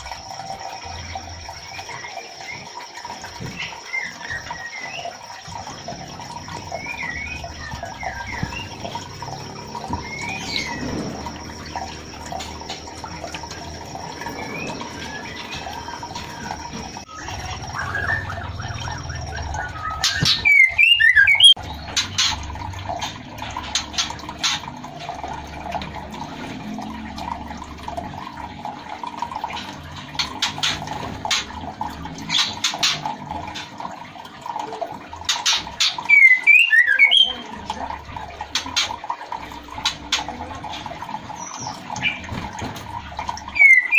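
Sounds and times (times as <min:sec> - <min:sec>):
bird whistled calls: 0:14.3 - 0:21.6, 0:36.0 - 0:37.4, 0:43.5 - 0:43.9.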